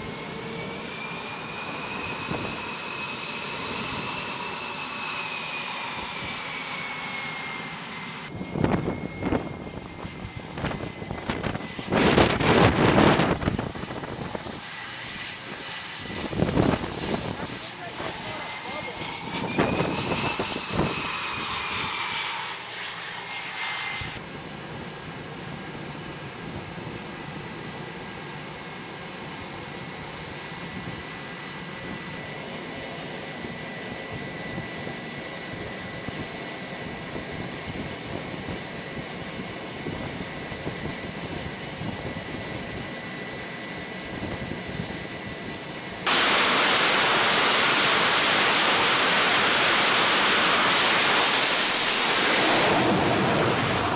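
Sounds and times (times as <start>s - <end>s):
jet engine roar: 0.0s - 53.9s
jet engine turbine whine: 0.0s - 53.9s.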